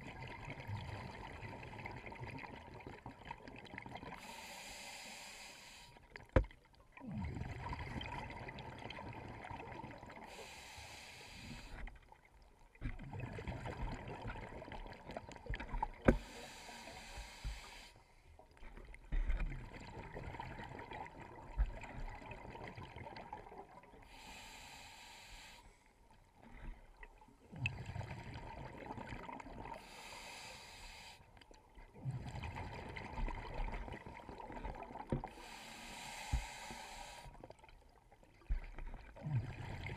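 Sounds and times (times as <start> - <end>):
regulator breath hissing: 4.2 - 6.0, 10.3 - 11.8, 16.1 - 18.1, 24.1 - 25.8, 29.8 - 31.3, 35.3 - 37.3.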